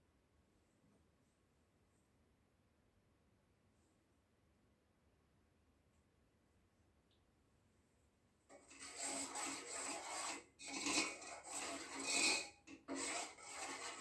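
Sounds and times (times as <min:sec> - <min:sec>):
spoon scraping saucepan bottom: 0:08.5 - 0:14.0.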